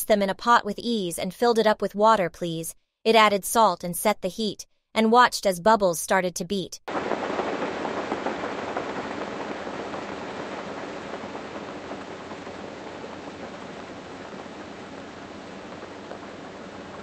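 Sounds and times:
water boiling in a pot: 6.9 - 17.0.

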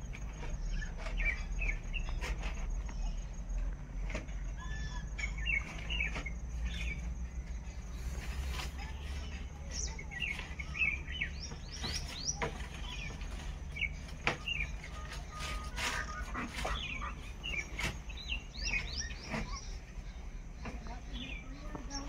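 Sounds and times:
steady low hum: 0.0 - 22.0
mynas chirping and whistling: 4.6 - 22.0.

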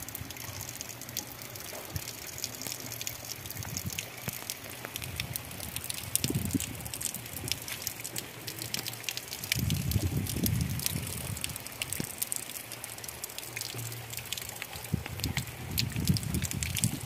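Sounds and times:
raindrops ticking: 0.0 - 17.0
wind gusts on microphone: 5.1 - 7.5, 9.5 - 12.1, 14.9 - 17.0.

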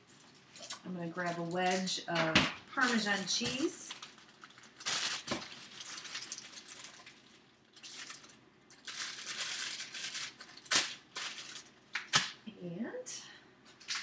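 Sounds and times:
plastic bag crinkling: 0.0 - 12.4.

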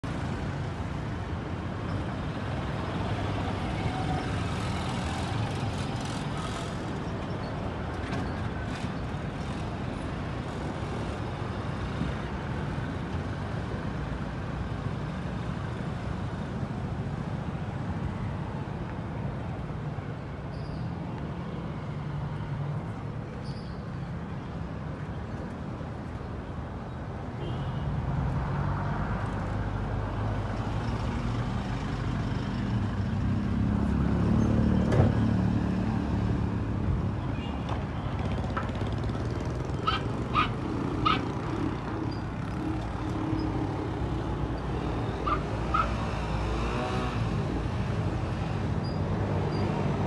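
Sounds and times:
motorcycles passing: 2.3 - 7.8, 29.4 - 50.0.

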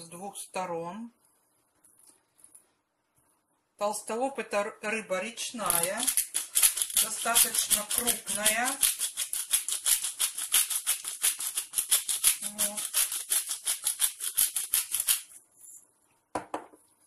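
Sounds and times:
salt mill grinding: 5.6 - 15.4.

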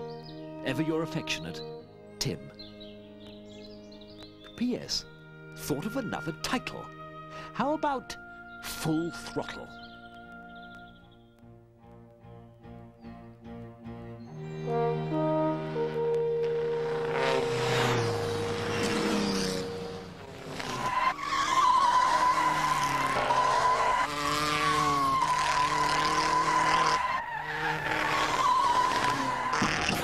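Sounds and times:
film music with held notes: 0.0 - 22.4
racing car engine: 15.6 - 30.0
high-pitched whine: 16.4 - 21.0.

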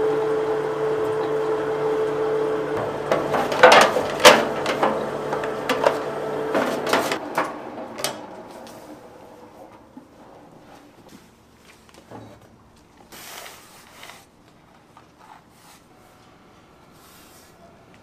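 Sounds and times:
grinding mill humming: 0.0 - 11.0
knocks and scrapes clearing chute: 2.1 - 9.0.

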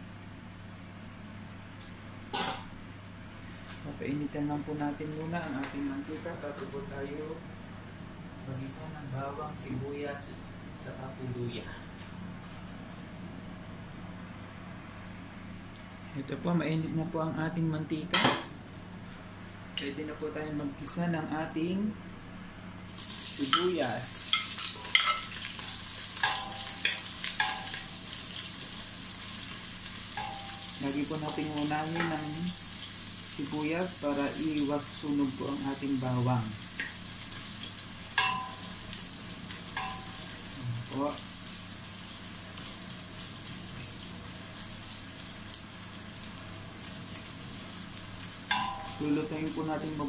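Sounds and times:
onions sizzling in oil: 22.8 - 50.0.

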